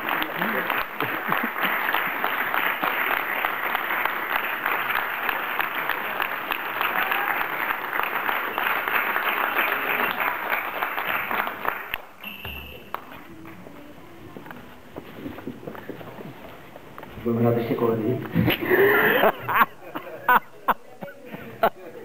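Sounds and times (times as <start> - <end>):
audience applause in a hall: 0.0 - 14.0.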